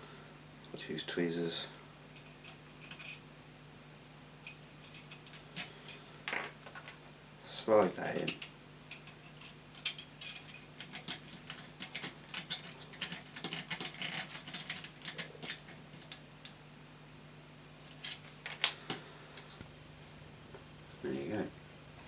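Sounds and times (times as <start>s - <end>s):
small clicks and light scrapes: 2.2s - 3.2s, 8.1s - 16.6s.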